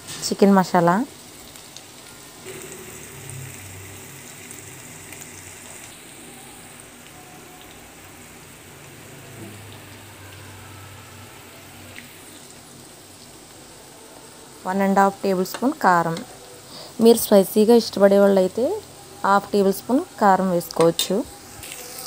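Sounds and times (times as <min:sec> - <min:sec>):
chicken frying in oil: 0:00.0 - 0:22.0.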